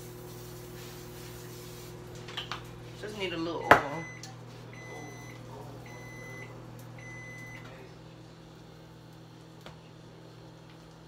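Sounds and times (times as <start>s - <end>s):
steady low hum: 0.0s - 11.0s
appliance timer beeps: 3.5s - 7.8s.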